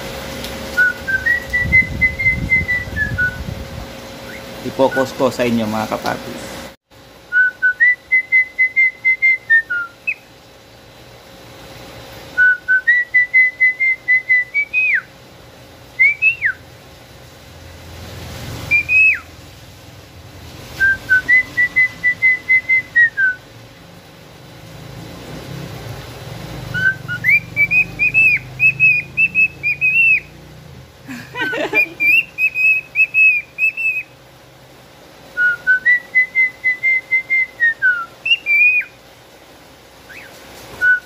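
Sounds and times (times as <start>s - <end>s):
swooping whistles: 0.7s - 3.6s, 4.2s - 5.3s, 7.3s - 10.3s, 12.3s - 15.1s, 16.0s - 16.6s, 18.6s - 19.3s, 20.7s - 23.5s, 26.7s - 30.3s, 31.4s - 34.1s, 35.4s - 39.0s, 40.0s - 41.0s
cockatiel whistling a tune: 0.8s - 3.5s, 7.3s - 10.3s, 12.4s - 15.1s, 16.0s - 16.6s, 18.7s - 19.3s, 20.8s - 23.4s, 26.7s - 30.3s, 31.6s - 34.1s, 35.4s - 39.0s, 40.1s - 41.0s.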